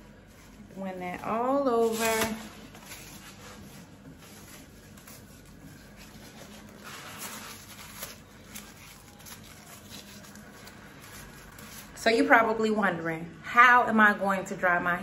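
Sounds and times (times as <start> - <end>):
hair wrap strips rustling: 0.0 - 12.4.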